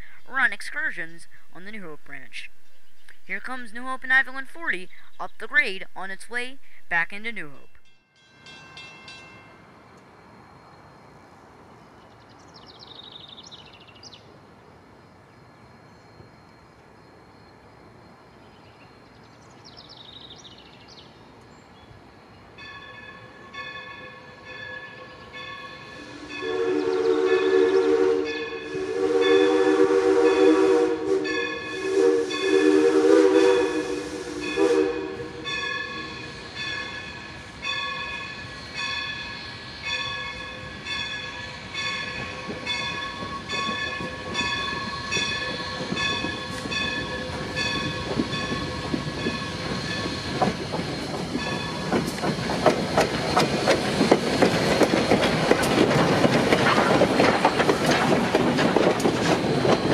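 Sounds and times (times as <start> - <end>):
locomotive bell ringing: 7.3 - 11.4, 22.6 - 26.7, 28.2 - 29.5, 31.2 - 32.6, 34.4 - 50.2, 51.3 - 52.0
rumble of locomotive: 8.5 - 59.9
steam locomotive chime whistle: 22.6 - 50.4.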